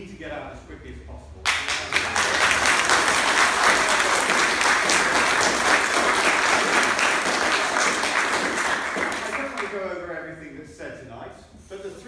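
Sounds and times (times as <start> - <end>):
audience applauding: 1.5 - 9.9.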